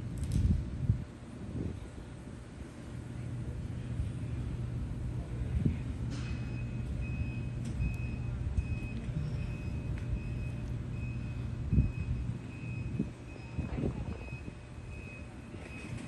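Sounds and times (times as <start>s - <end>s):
low engine rumble: 0.0s - 16.0s
reversing alarm beeping: 6.3s - 16.0s.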